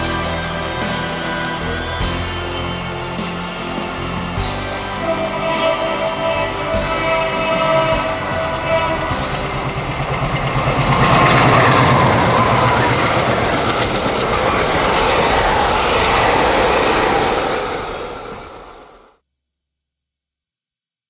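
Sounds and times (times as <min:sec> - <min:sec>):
train wheels clattering on rails: 0:00.0 - 0:18.8
diesel locomotive engine: 0:00.0 - 0:19.2.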